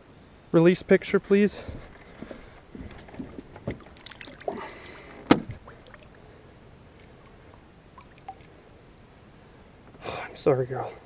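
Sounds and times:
water sounds: 0:01.4 - 0:08.7
fish splashing into water: 0:02.8 - 0:06.2.

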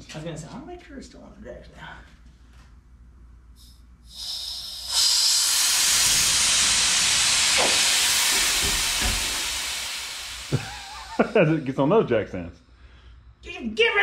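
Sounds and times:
compressed air hissing: 0:03.5 - 0:11.8.

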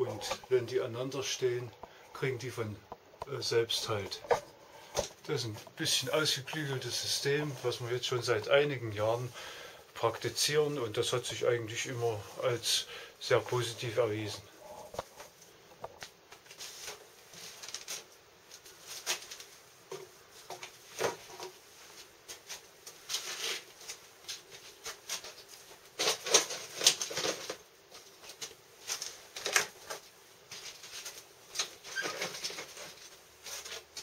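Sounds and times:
flower pots knocking and scraping: 0:02.8 - 0:05.8
twigs rustling: 0:14.5 - 0:34.0.

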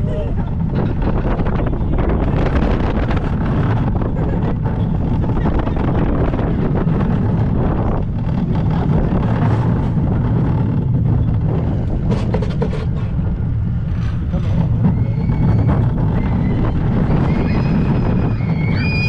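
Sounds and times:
roller coaster rumbling on track: 0:00.0 - 0:19.0
faint high squeal: 0:14.8 - 0:19.0.

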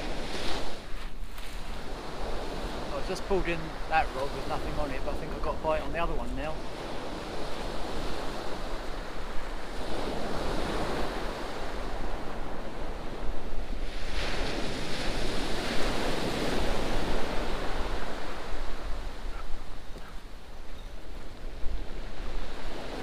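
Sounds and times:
wind rumbling on microphone: 0:06.6 - 0:23.0.

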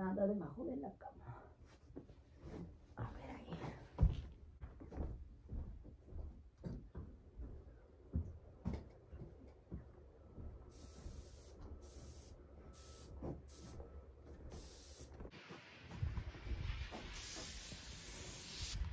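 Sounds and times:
aerosol spray can hissing: 0:10.7 - 0:13.7, 0:14.5 - 0:15.1, 0:17.0 - 0:18.8.

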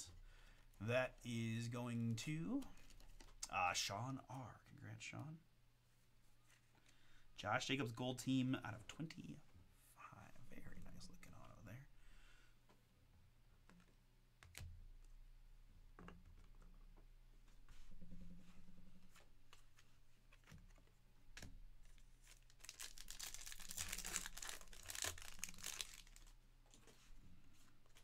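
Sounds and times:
foil wrapper tearing and crinkling: 0:22.3 - 0:26.4.

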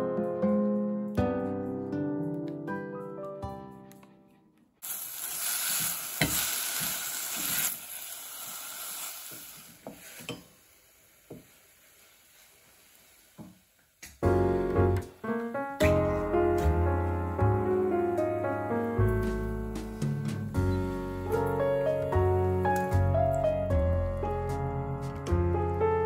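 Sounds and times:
piano music: 0:00.0 - 0:04.3, 0:14.2 - 0:26.0
food sizzling in saucepan: 0:04.8 - 0:14.3.

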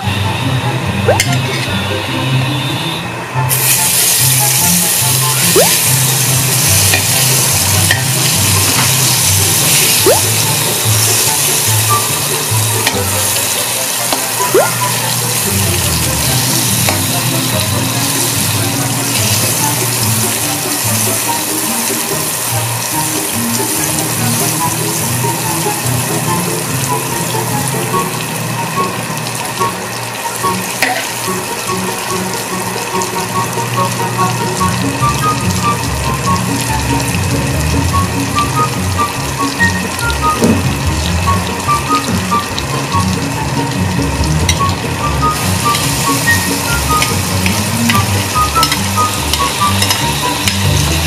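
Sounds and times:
metal spatula scraping pan: 0:01.3 - 0:01.8
butter sizzling in a pan: 0:03.5 - 0:51.0
background music with bass line: 0:03.8 - 0:28.3, 0:33.3 - 0:51.0.

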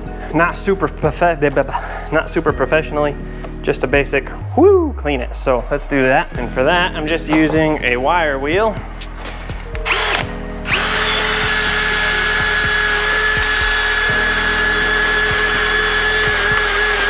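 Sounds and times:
drill motor whine: 0:09.8 - 0:17.0.

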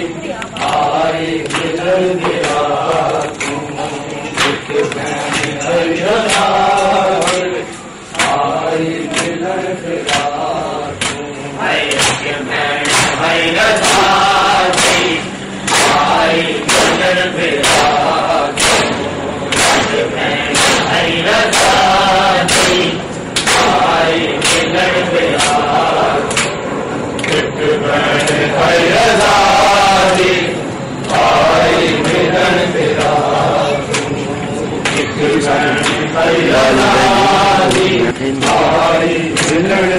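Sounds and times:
men chanting a lament: 0:00.0 - 0:39.9
hand-on-chest slaps: 0:11.9 - 0:13.2, 0:18.6 - 0:20.0.

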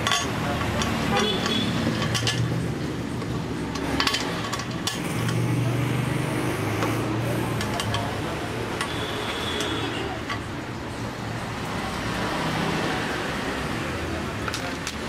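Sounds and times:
metal clinks and knocks: 0:00.0 - 0:02.7, 0:03.7 - 0:05.4.

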